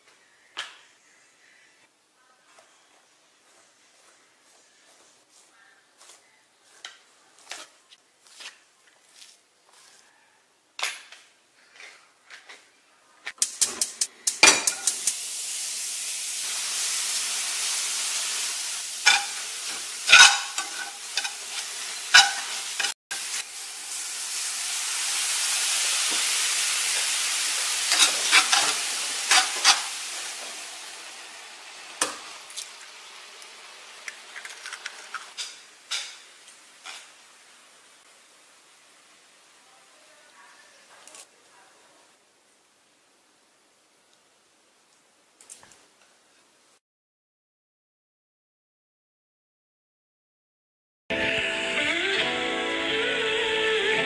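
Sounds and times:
food sizzling in a frying pan: 0:13.4 - 0:41.3
utensils knocking against a pan: 0:13.5 - 0:15.1, 0:19.0 - 0:22.9, 0:27.9 - 0:30.5.

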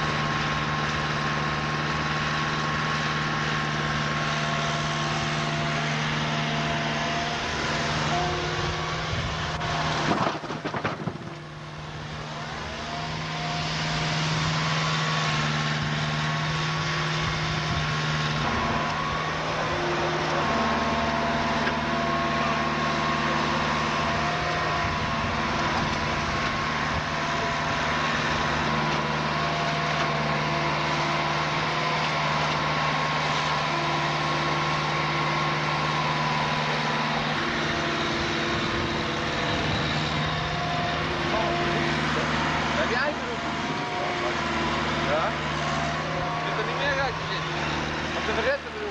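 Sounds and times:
heavy engine humming: 0:00.0 - 0:48.9
clatter of impacts: 0:09.9 - 0:11.8.

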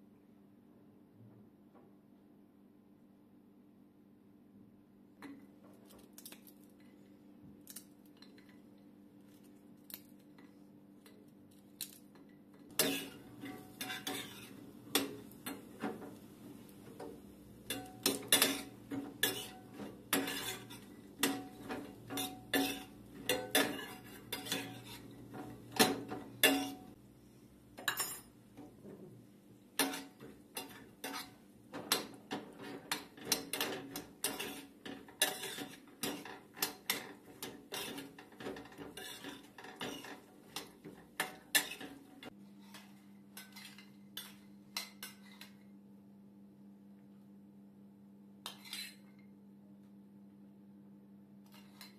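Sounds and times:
metal spoon scraping steel pan: 0:12.7 - 0:16.0, 0:17.7 - 0:27.0, 0:29.8 - 0:45.6.

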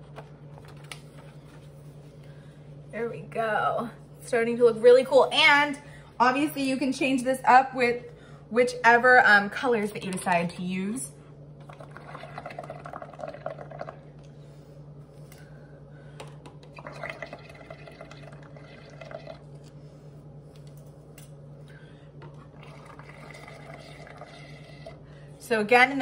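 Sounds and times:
bubbling gurgles through a straw: 0:11.6 - 0:14.2, 0:16.6 - 0:19.6, 0:22.2 - 0:25.1.

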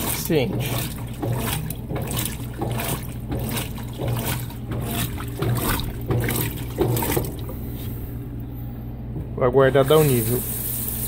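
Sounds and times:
water pouring into washing machine: 0:00.0 - 0:07.9, 0:09.6 - 0:11.0
washing machine hum: 0:00.0 - 0:11.0.

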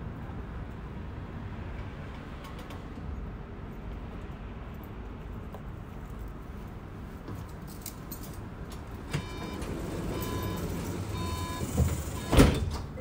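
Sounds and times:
tram rumble: 0:00.0 - 0:13.0
door warning beeps: 0:09.1 - 0:12.8.

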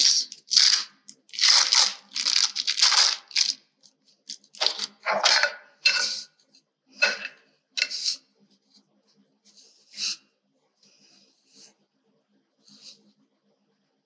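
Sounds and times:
foil wrapper crinkling and tearing: 0:00.0 - 0:05.4.

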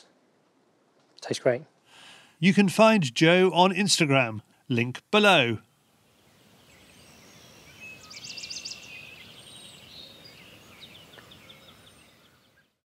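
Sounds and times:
steady background hiss: 0:00.0 - 0:12.8
small birds chirping: 0:03.2 - 0:12.8.

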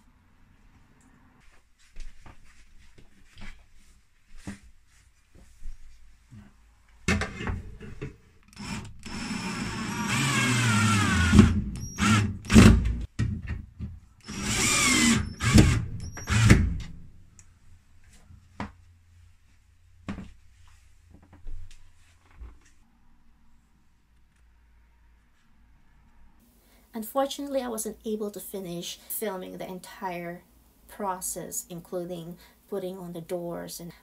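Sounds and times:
cordless drill motor whine: 0:08.6 - 0:13.0, 0:14.2 - 0:16.7.

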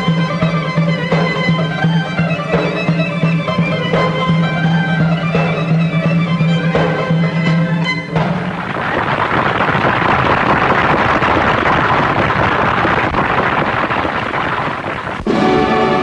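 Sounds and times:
large crowd applauding: 0:08.2 - 0:16.0.

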